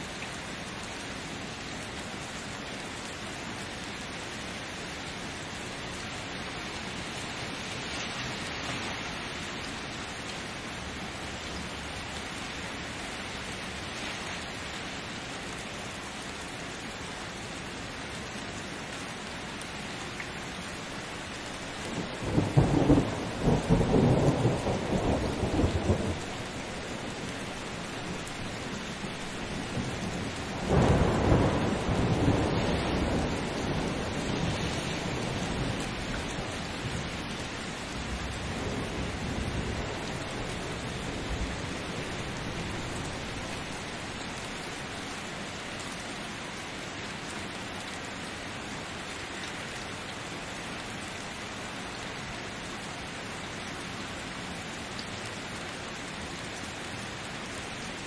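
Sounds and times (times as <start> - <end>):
steady rain: 0.0 - 58.0
rolling thunder: 21.9 - 37.3.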